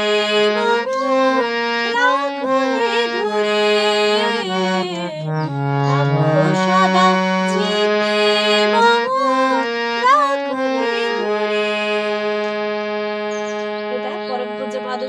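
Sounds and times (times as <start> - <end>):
harmonium slow melody: 0.0 - 15.0.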